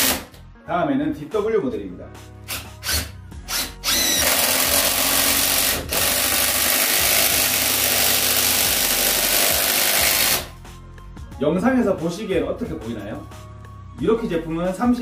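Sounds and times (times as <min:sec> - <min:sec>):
impact driver hammering: 0:02.5 - 0:10.5.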